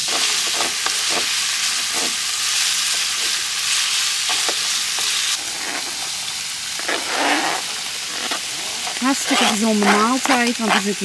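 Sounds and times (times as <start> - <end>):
wooden spoon scraping and tapping: 0.0 - 2.2, 8.3 - 11.0
meat sizzling in a frying pan: 0.0 - 11.0.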